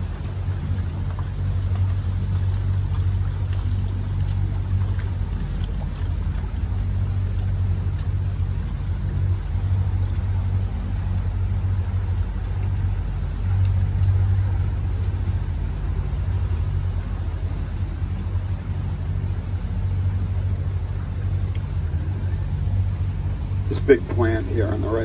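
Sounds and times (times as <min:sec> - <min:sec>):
boat motor humming: 0:00.0 - 0:25.0
water churning along hull: 0:00.0 - 0:25.0.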